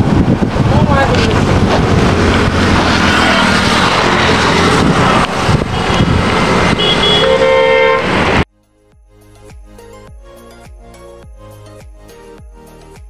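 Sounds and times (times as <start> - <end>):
highway traffic noise: 0.0 - 8.5
vehicle horn honking: 5.5 - 8.4.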